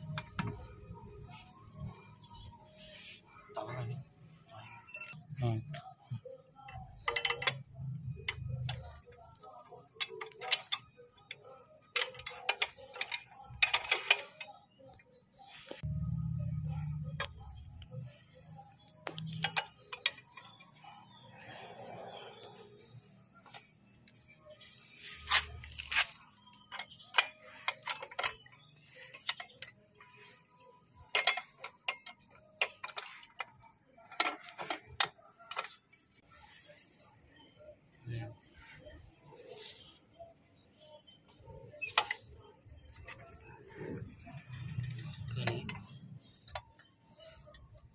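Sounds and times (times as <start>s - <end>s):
metallic clicks and clinks: 5.8s - 15.0s, 15.7s - 36.3s, 41.5s - 47.9s.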